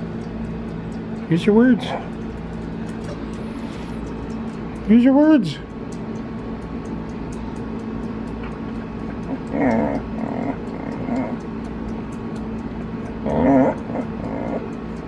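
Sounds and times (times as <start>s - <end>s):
dog grumbling whines: 9.3s - 11.4s, 13.2s - 14.8s.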